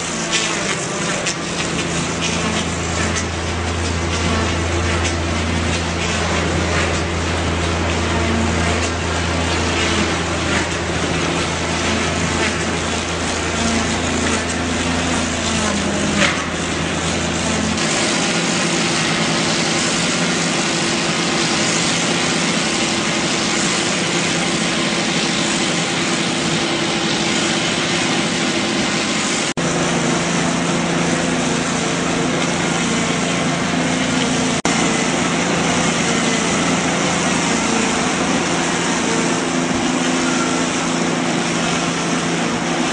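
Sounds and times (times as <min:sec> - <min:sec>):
log lathe running: 0:00.0 - 0:42.9
motor hum: 0:00.0 - 0:42.9.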